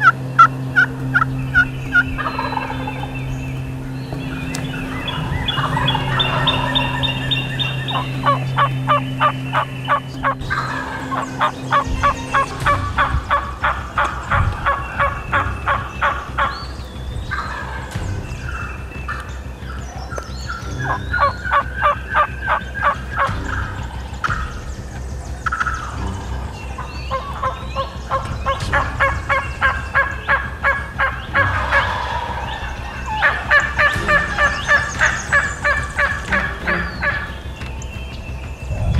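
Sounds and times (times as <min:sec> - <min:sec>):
turkey yelping: 0:00.0 - 0:03.2, 0:04.3 - 0:16.6, 0:17.3 - 0:37.5
low steady hum: 0:00.0 - 0:38.9
songbird chirps: 0:00.0 - 0:38.9.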